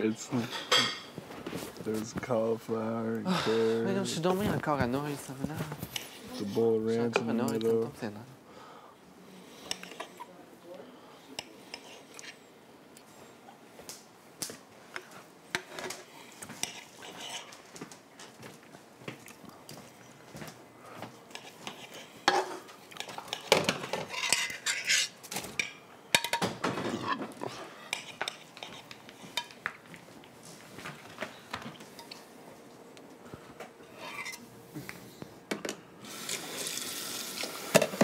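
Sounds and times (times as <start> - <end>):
dishes and cutlery clinking: 0.0 - 1.2, 9.6 - 10.3, 21.3 - 29.6, 31.6 - 32.3.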